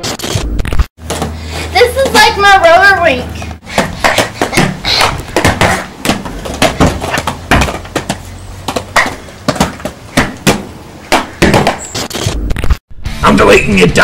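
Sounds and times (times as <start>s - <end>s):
roller skates clattering on concrete: 3.8s - 12.0s.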